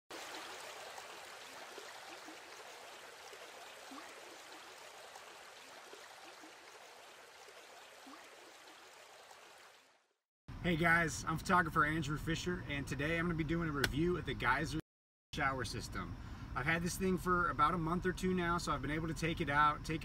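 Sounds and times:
flowing water rushing: 0:00.1 - 0:10.2
faint water gurgles: 0:00.1 - 0:14.8.

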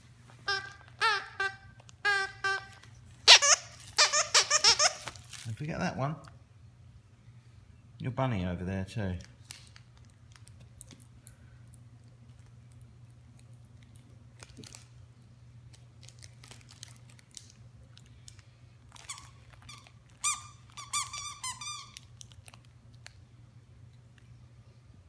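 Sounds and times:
squeaky toy squeaking: 0:00.4 - 0:05.2, 0:19.0 - 0:22.1.

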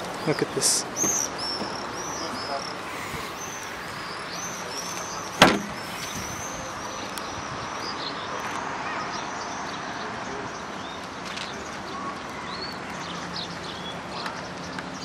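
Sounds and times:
birds chirping: 0:00.0 - 0:15.0
car tailgate slamming shut: 0:05.4 - 0:05.9.

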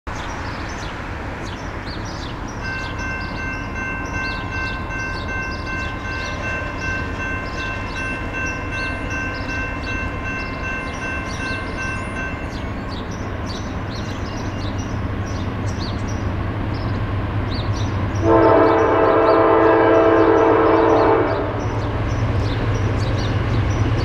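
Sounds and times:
birds chirping: 0:00.1 - 0:24.0
train horn chord: 0:18.2 - 0:21.8.

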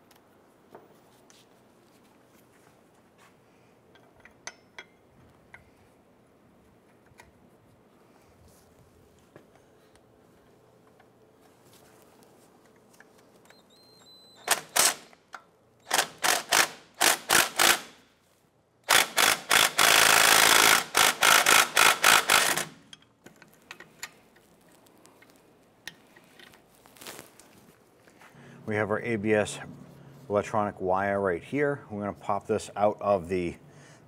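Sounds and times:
hand ratchet clicking: 0:14.4 - 0:18.0, 0:18.9 - 0:23.1.

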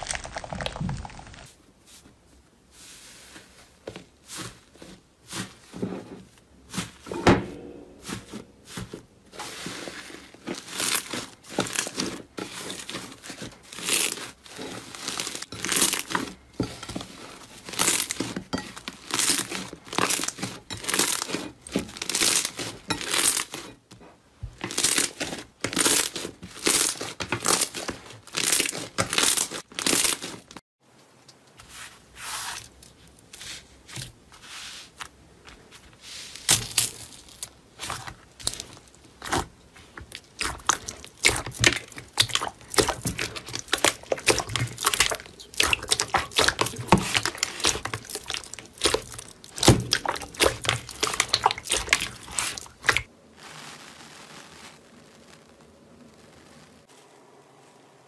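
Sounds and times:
slime crackling and popping: 0:00.0 - 0:01.5, 0:19.0 - 0:23.8, 0:24.6 - 0:30.6, 0:36.5 - 0:56.9.

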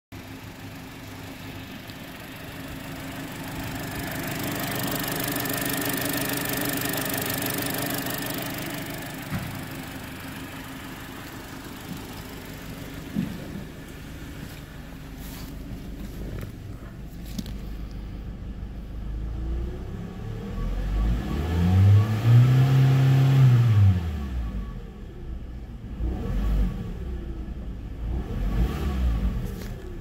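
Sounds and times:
car engine idling: 0:00.1 - 0:21.0, 0:24.0 - 0:26.0, 0:26.7 - 0:30.0.

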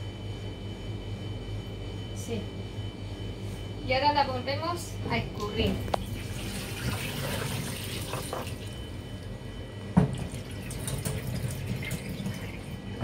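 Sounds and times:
water splashing into sink: 0:06.0 - 0:08.8, 0:10.0 - 0:12.8.

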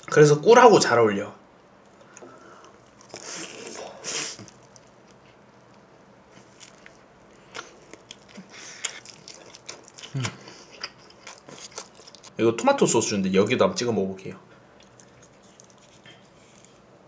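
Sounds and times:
chewing with mouth clicks: 0:04.4 - 0:12.3, 0:14.8 - 0:16.9.

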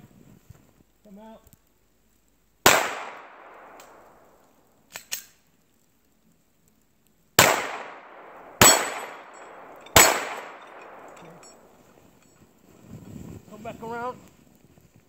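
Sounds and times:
pistol shots with echo: 0:02.6 - 0:04.4, 0:07.4 - 0:11.8
faint clicks: 0:03.6 - 0:07.2.

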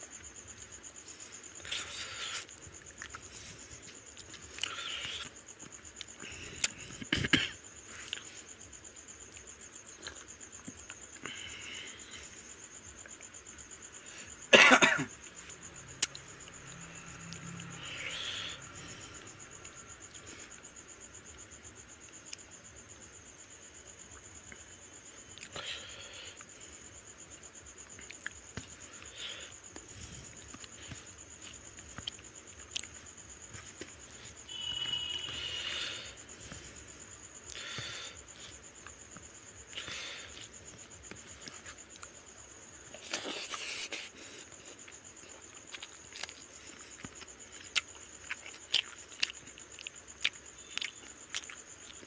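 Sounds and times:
man coughing: 0:14.5 - 0:15.1
high pulsing chirp: 0:34.1 - 0:36.3
hiss with whistling tone: 0:34.1 - 0:37.0.

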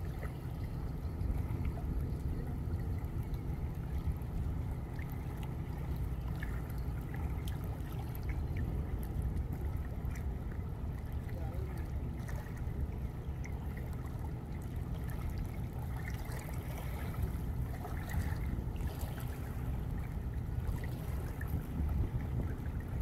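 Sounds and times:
river water lapping at shore: 0:00.0 - 0:23.0
wind buffeting microphone: 0:14.8 - 0:23.0.

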